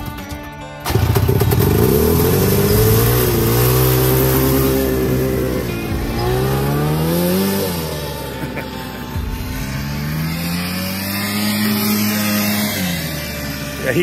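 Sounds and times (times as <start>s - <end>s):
two-stroke engine revving: 0.8s - 14.0s.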